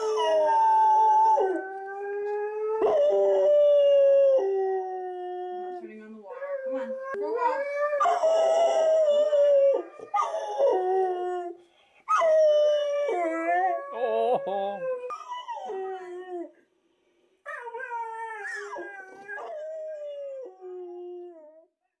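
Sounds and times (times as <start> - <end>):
dog howling and whining: 0.0 - 5.8, 6.4 - 16.5, 17.5 - 21.6.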